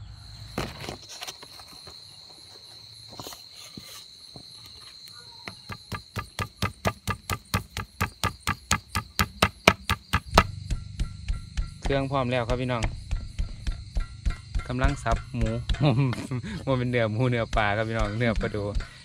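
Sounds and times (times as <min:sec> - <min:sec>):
high insect trill: 0:00.0 - 0:19.0
knife chopping on wooden block: 0:05.4 - 0:10.6.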